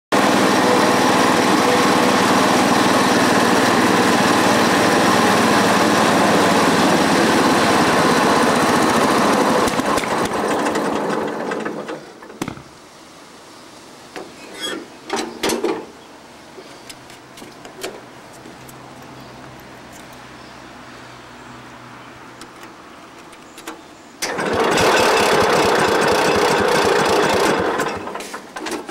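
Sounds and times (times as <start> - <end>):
lawn tractor engine running: 0.1 - 12.5, 24.2 - 28.9.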